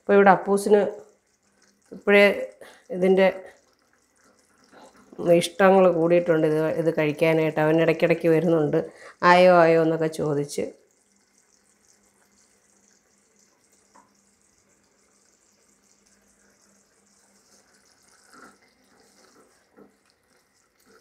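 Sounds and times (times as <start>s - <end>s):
thick liquid bubbling in a pan: 0.0s - 21.0s
wooden spatula scraping: 17.5s - 21.0s.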